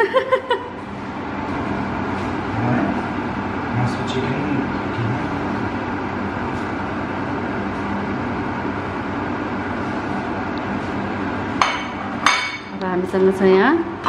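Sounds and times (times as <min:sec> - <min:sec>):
machine humming and rushing: 0:00.0 - 0:12.7
plate clinking: 0:11.6 - 0:12.7.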